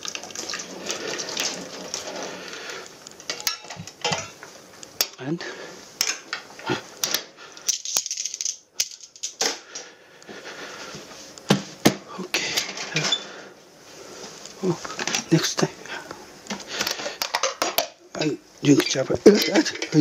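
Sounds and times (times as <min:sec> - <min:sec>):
kitchenware clattering: 0:03.3 - 0:04.4, 0:17.2 - 0:20.0.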